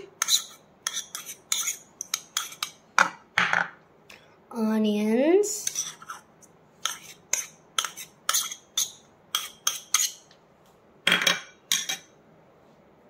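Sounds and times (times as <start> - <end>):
metal spoon scraping ceramic bowl: 0.0 - 2.8, 5.6 - 10.3, 11.2 - 12.1.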